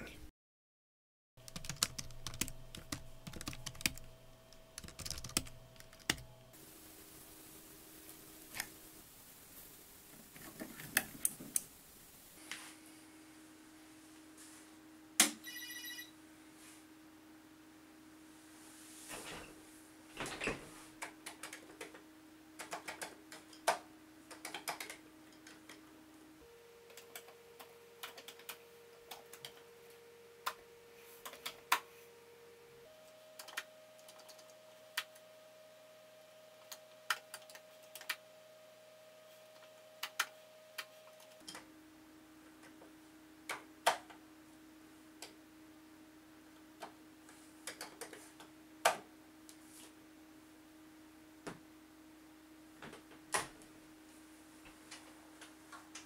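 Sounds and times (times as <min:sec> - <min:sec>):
faint steady hum: 0:01.4 - 0:56.0
keyboard keystrokes clicking: 0:01.5 - 0:06.2.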